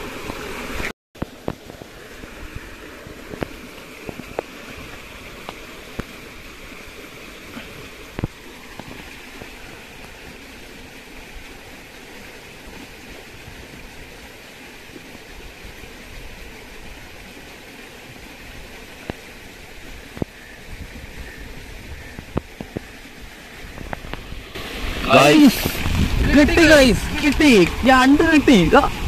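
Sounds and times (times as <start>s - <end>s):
steady rushing noise: 23.6s - 29.0s.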